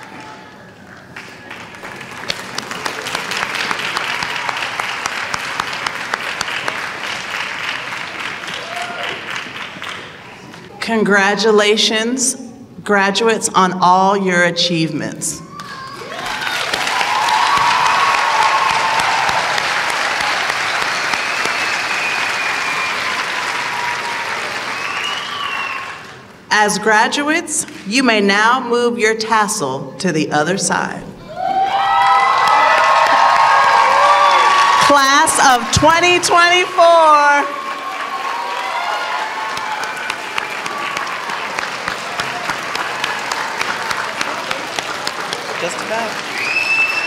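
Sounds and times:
audience applauding: 0.0s - 10.8s, 15.6s - 26.3s, 31.6s - 47.0s.

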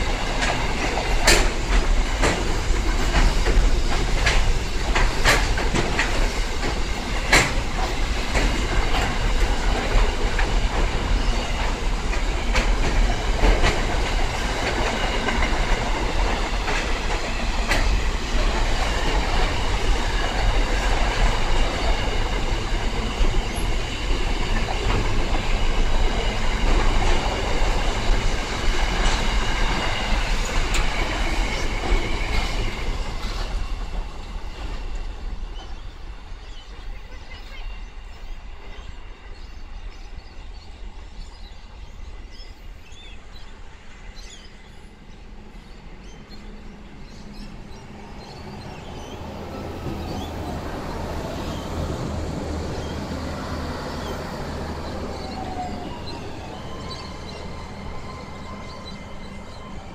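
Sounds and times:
wheels clicking over rail joints: 0.0s - 35.1s
freight train wheels rumbling: 0.0s - 59.9s
passenger train pulling in: 0.0s - 59.9s.

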